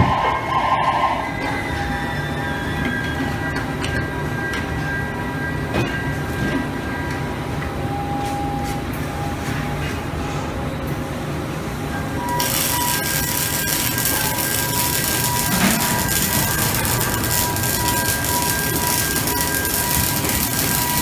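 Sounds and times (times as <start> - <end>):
welding arc hissing: 12.3 - 21.0.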